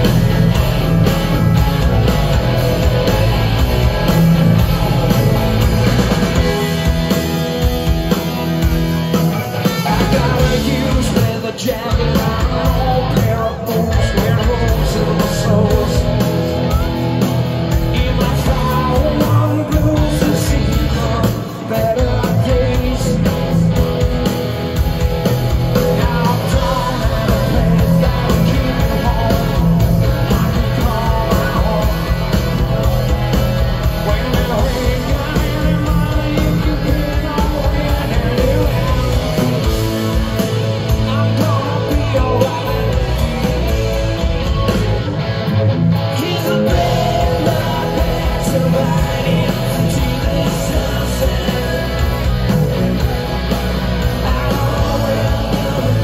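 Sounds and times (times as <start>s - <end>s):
man singing: 0.0s - 7.6s, 9.3s - 45.1s, 46.0s - 56.0s
live rock band playing: 0.0s - 56.0s.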